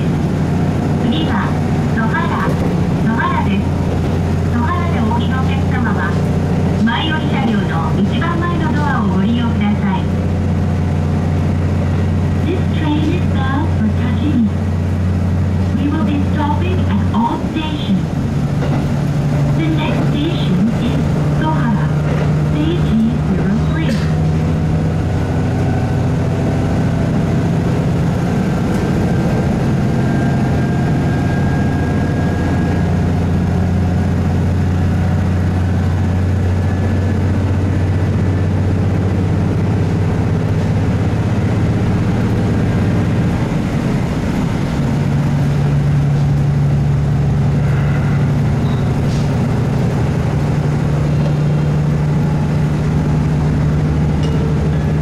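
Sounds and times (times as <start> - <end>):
railcar diesel engine droning: 0.0 - 55.0
running gear hum: 0.0 - 55.0.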